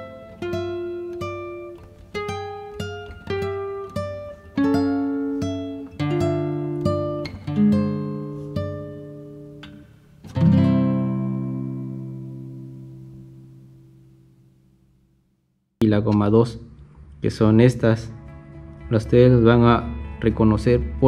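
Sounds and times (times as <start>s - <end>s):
guitar plucking notes and chord: 0.0s - 14.8s.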